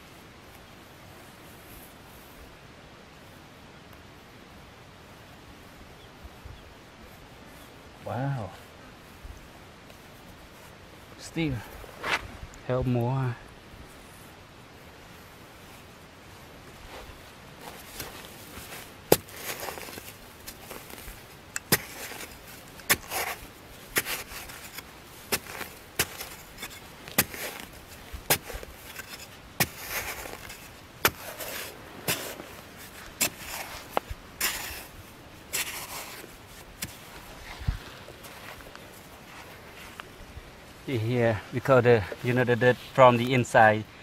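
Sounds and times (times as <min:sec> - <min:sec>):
dirt clods landing: 0:16.7 - 0:40.0
digging tool scraping sandy soil: 0:16.8 - 0:40.0.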